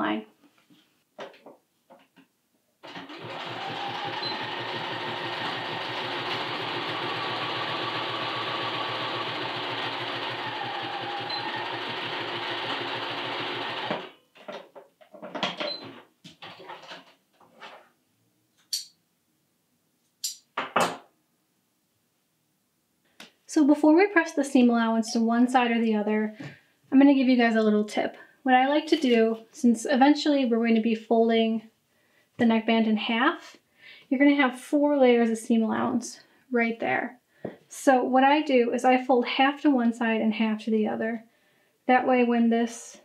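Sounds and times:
sewing machine stitching: 2.8 - 14.2.

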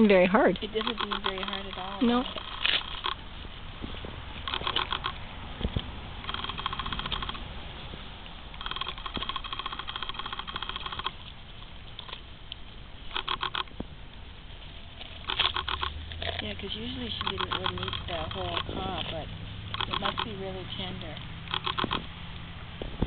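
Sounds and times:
dog crunching corn cob: 0.6 - 3.2, 4.4 - 7.4, 14.9 - 20.4.

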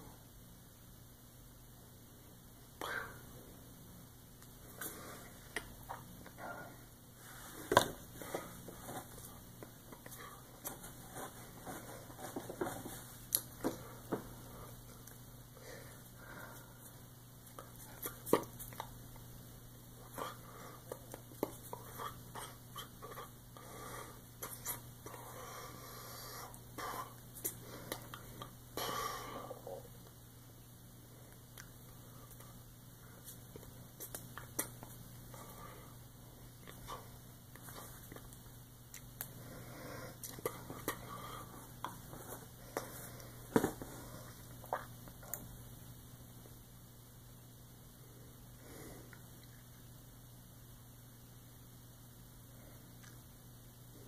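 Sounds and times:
low electrical hum: 0.0 - 54.0
faint mouth noises: 20.0 - 23.4, 24.4 - 25.3, 44.0 - 45.5
person breathing and sniffing: 39.3 - 44.6
hands tapping and rustling: 41.8 - 44.0.

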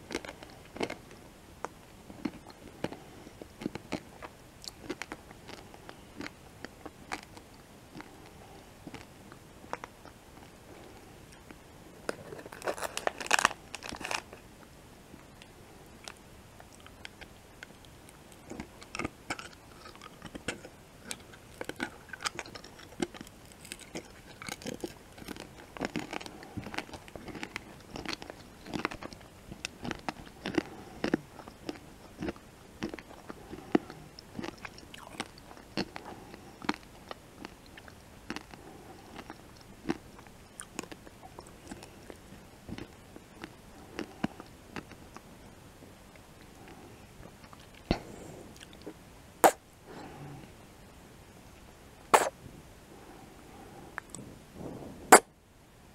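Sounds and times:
candy shell cracking when chewed: 0.0 - 9.1, 10.9 - 14.4, 15.4 - 45.2, 52.1 - 52.3.

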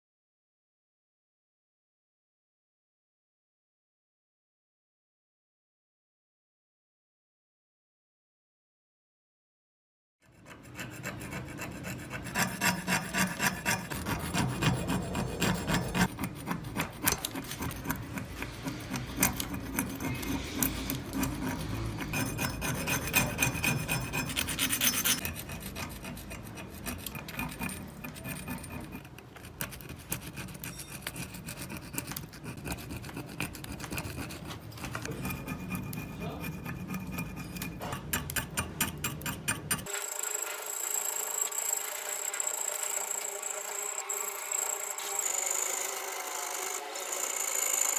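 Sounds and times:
metal tool scraping rust: 10.2 - 47.9.

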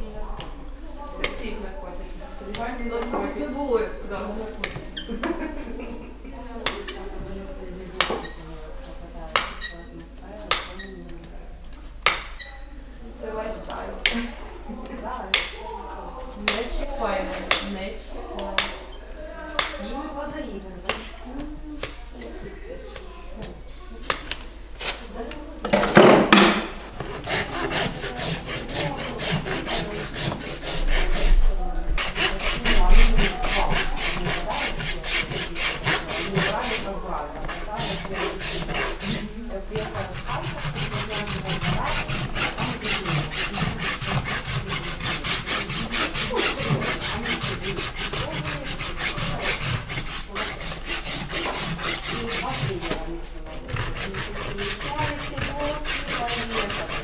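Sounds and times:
rasp filing hoof: 8.0 - 8.5, 9.3 - 9.9, 10.5 - 11.0, 12.1 - 12.7, 18.6 - 21.2, 23.4 - 31.4, 32.0 - 57.0.

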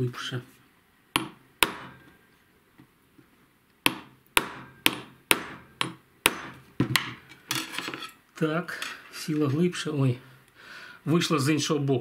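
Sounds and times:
hammer tapping metal punch: 1.2 - 2.2, 3.8 - 7.3.

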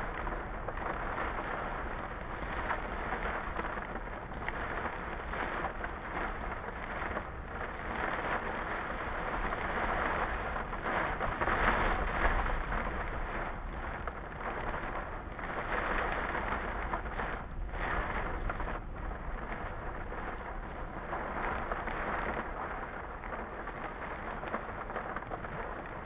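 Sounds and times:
heavy rain on car roof: 0.0 - 26.0.

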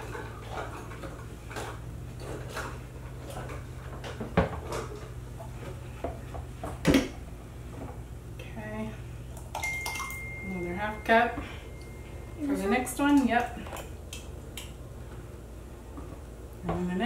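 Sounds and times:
steady low hum: 0.0 - 17.0
jars clinking and knocking: 9.5 - 13.8.

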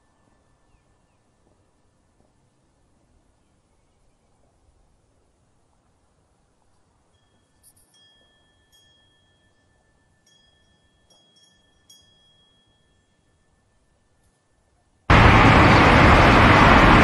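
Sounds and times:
faint wind chimes: 0.0 - 3.3, 6.2 - 15.1.

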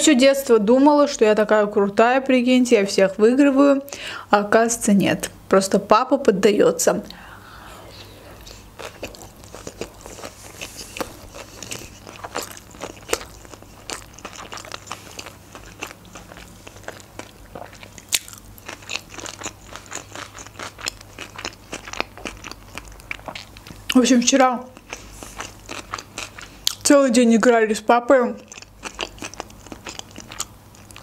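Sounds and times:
person chewing: 8.0 - 24.0, 24.7 - 26.9, 28.4 - 31.0.

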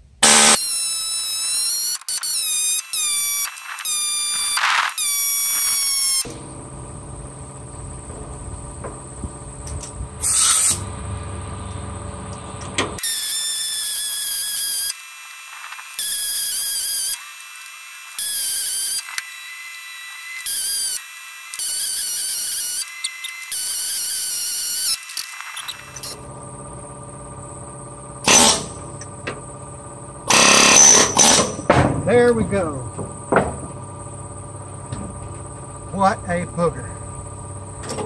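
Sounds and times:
pneumatic air hammer pounding: 0.2 - 6.5, 9.7 - 10.9, 28.2 - 29.4, 30.3 - 32.1, 32.8 - 33.8
low steady hum: 6.2 - 13.0, 26.0 - 38.0.

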